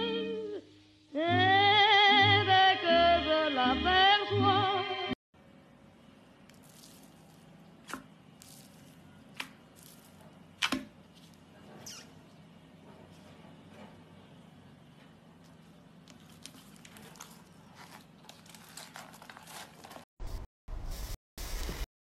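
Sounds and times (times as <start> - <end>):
slime crunching and squishing: 6.5 - 10.8, 15.5 - 20.1.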